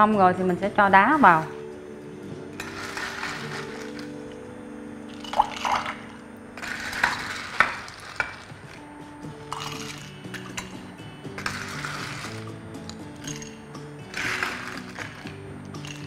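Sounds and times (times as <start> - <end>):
soft background music: 0.0 - 16.0
ice cubes clinking in glass: 2.6 - 4.4, 5.0 - 10.8, 11.4 - 16.0
metal scoop knocking and rattling: 5.1 - 16.0.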